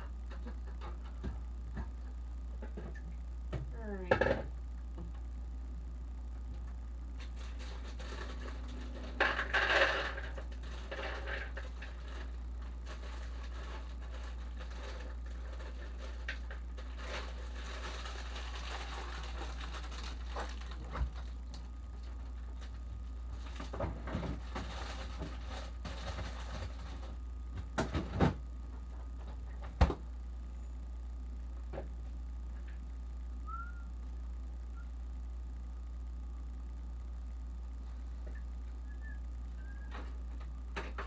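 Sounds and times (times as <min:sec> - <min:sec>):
low hum: 0:00.0 - 0:41.0
rustling: 0:07.2 - 0:27.2.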